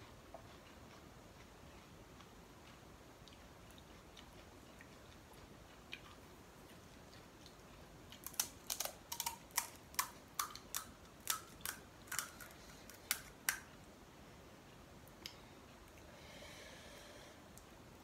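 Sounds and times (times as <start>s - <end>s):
puri shells cracking: 8.2s - 13.7s.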